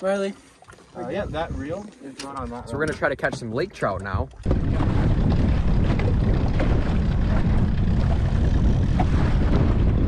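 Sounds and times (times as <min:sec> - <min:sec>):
wind rumbling on microphone: 0:01.1 - 0:01.8, 0:04.1 - 0:10.0
outboard motor running: 0:04.0 - 0:10.0.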